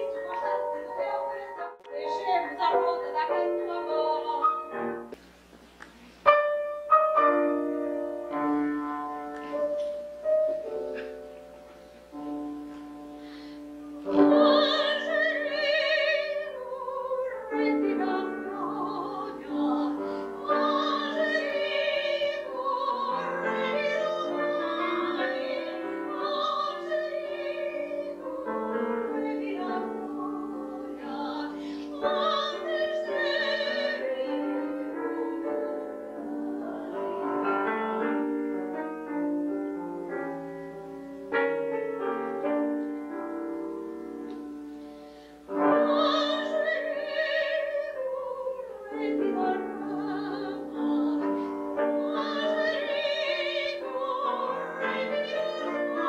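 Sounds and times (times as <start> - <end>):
soprano singing operatic style: 0.0 - 5.0, 13.6 - 39.5, 45.5 - 56.0
grand piano: 0.0 - 56.0.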